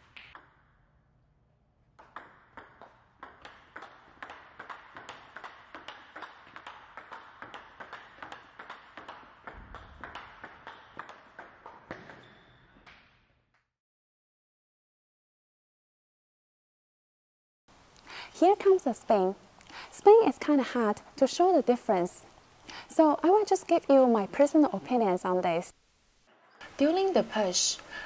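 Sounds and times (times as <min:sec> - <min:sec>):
table tennis ball clicks: 0:02.0 - 0:13.1.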